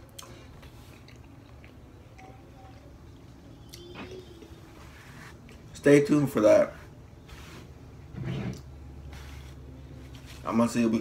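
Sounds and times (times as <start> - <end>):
faint wet chewing: 0.1 - 3.8.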